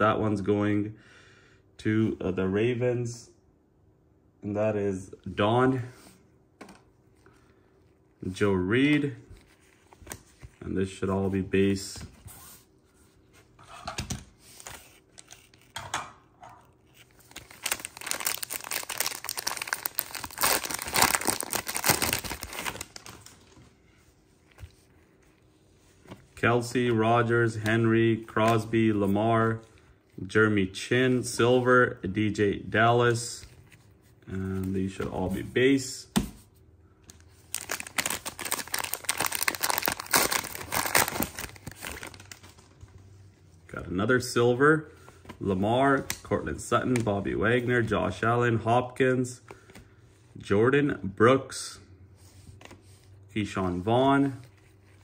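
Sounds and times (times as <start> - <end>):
foil wrapper crinkling and tearing: 16.6 - 23.6, 37.3 - 42.7
wrapper rustling: 16.6 - 26.2, 37.1 - 43.0.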